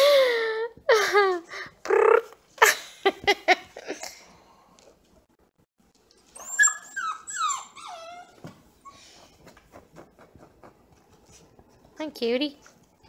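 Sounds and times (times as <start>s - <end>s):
faint rhythmic soft sounds: 0.0s - 13.0s
puppy whining: 6.3s - 11.4s.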